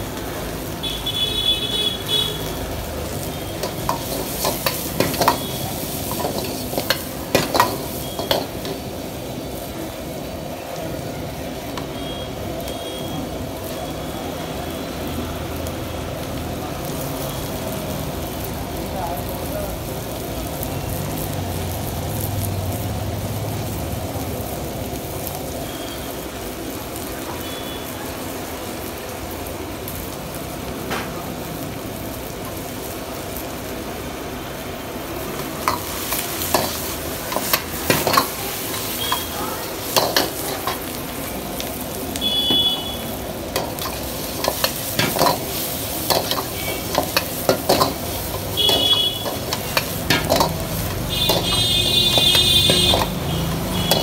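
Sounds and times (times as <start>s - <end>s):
vegetables sizzling in wok: 0.0s - 54.0s
metal ladle scraping wok: 3.5s - 9.0s, 35.4s - 41.0s, 43.4s - 54.0s.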